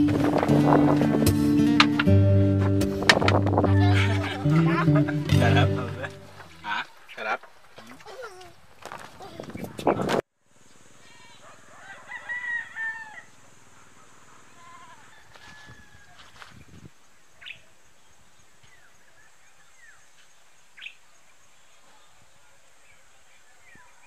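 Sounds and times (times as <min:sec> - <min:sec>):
rooster crowing: 0:03.5 - 0:05.0, 0:11.0 - 0:13.4, 0:14.6 - 0:16.5
steady high-pitched hiss: 0:10.4 - 0:24.0.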